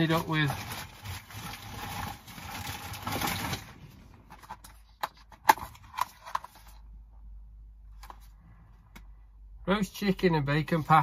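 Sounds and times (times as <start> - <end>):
plastic packaging rustling: 0.0 - 6.8.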